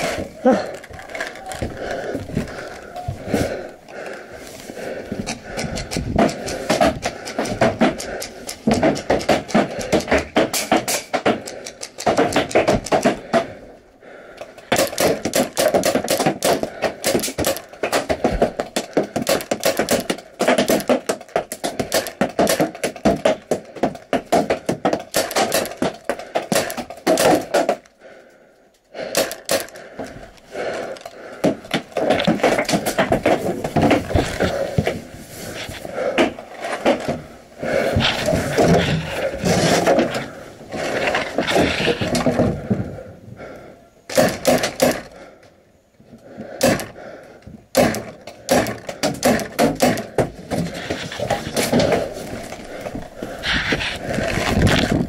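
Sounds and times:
paintball marker firing: 25.1 - 27.7, 29.1 - 29.8, 44.1 - 45.1.

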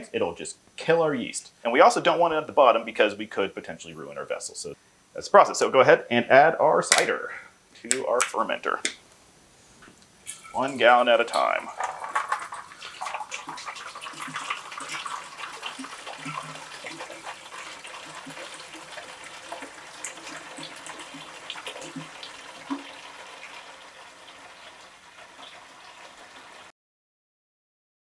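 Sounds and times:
juice pouring into liquid: 10.2 - 26.7.

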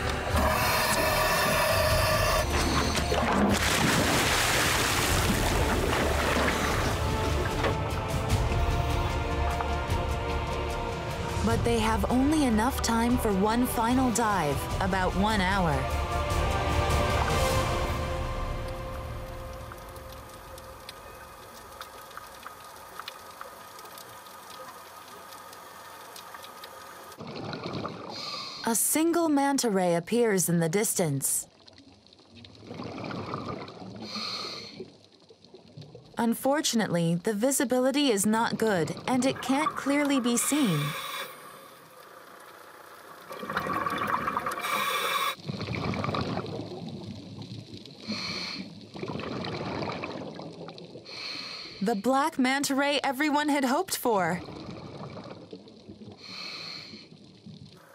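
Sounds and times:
underwater rushing noise: 0.0 - 11.4, 15.9 - 28.4, 39.0 - 51.2, 54.4 - 57.9
scuba regulator breathing: 0.2 - 3.1, 34.0 - 34.9, 40.3 - 41.9, 44.5 - 45.5, 48.0 - 48.8, 51.1 - 51.8, 56.2 - 57.2
bubbling exhaled air: 32.6 - 35.0, 43.2 - 51.8, 54.4 - 57.9.

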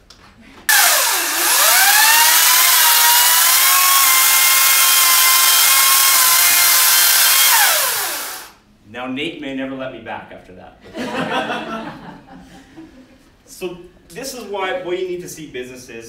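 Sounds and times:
electric chainsaw cutting wood: 0.7 - 8.6.

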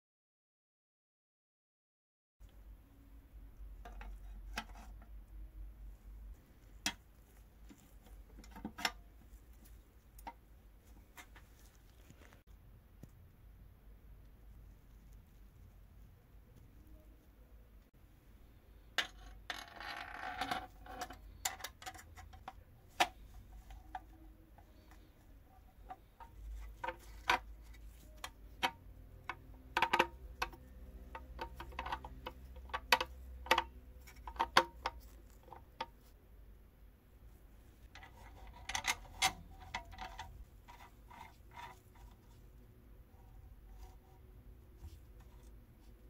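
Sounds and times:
metal parts clicking and tapping: 25.8 - 36.0, 37.8 - 42.3.

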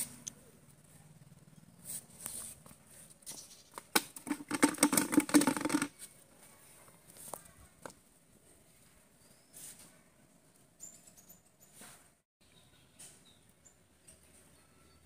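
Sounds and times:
fish thrashing in a plastic bucket: 3.8 - 6.0.

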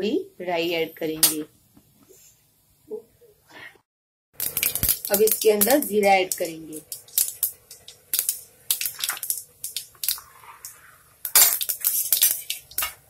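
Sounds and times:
seeds crackling in hot oil: 4.4 - 13.0.

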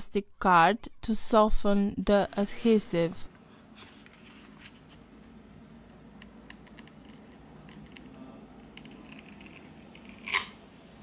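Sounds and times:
plastic card scratching adhesive: 6.5 - 10.6.

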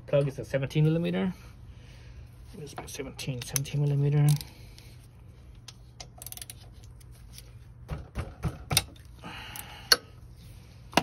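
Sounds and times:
wrench clicking on metal: 6.0 - 6.6.

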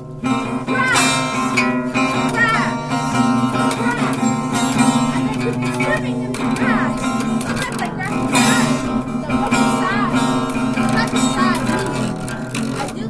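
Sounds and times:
acoustic guitar strummed and plucked: 0.0 - 13.0.

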